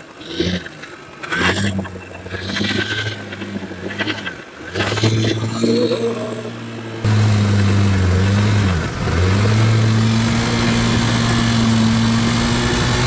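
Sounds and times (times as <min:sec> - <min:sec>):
water churning and splashing: 0:00.0 - 0:13.0
motorcycle engine running: 0:06.4 - 0:13.0.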